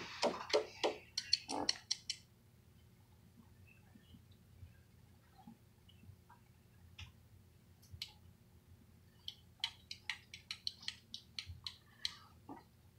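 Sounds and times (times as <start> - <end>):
magnetic balls clicking together: 0.0 - 2.3, 9.2 - 12.2.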